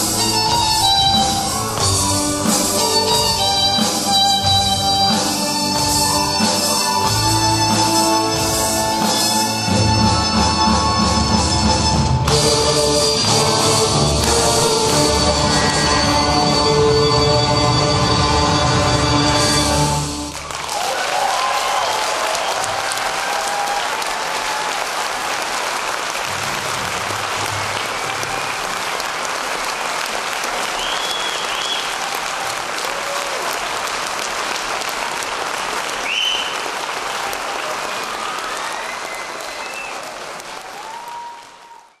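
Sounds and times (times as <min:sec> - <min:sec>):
audience applauding: 0:00.0 - 0:42.0
short whistles: 0:30.8 - 0:31.9, 0:36.0 - 0:36.7, 0:38.5 - 0:40.1.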